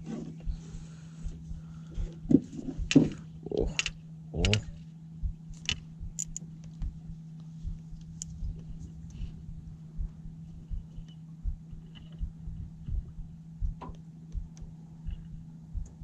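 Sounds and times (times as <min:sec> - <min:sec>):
low hum: 0:00.0 - 0:16.0
hands knocking on reel: 0:00.3 - 0:03.9.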